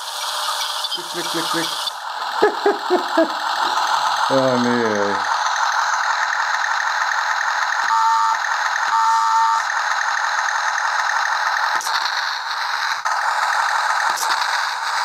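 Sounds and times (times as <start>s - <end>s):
toy tank engine sound effect: 0.0s - 15.0s
toy clicks: 3.2s - 15.0s
short electronic tones: 7.9s - 9.7s.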